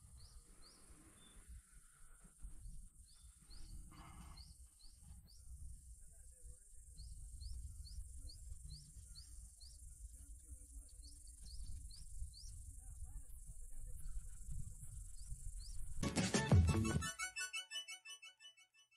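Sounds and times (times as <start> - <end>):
short rising chirps: 16.3 - 18.9.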